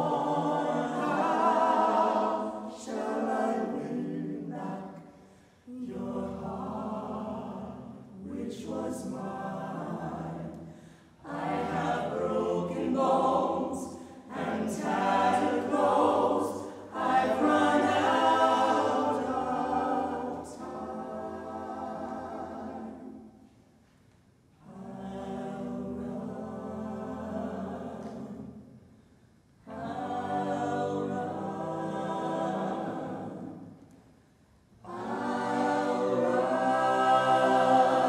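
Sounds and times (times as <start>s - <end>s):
choir singing a cappella: 0.0s - 23.8s, 24.5s - 38.0s.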